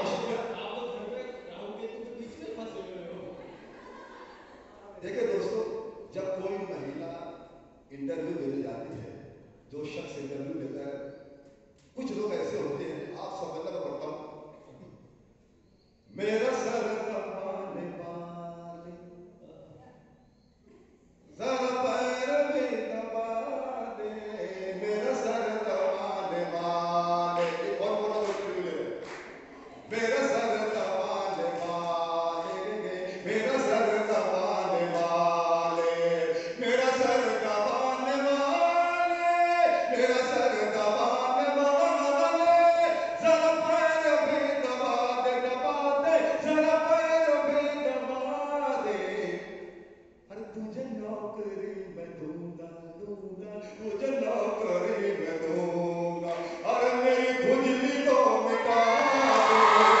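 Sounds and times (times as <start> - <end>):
man chanting through a microphone: 0.0 - 3.6, 16.1 - 19.7, 21.3 - 49.6, 50.3 - 60.0.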